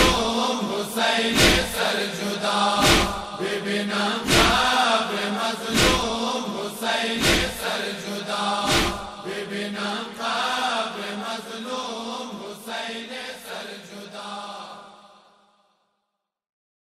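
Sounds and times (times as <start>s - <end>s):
voices chanting a lament: 0.0s - 15.6s
heavy thump: 1.4s - 1.7s, 2.8s - 3.3s, 4.3s - 4.6s, 5.8s - 6.1s, 8.6s - 9.1s.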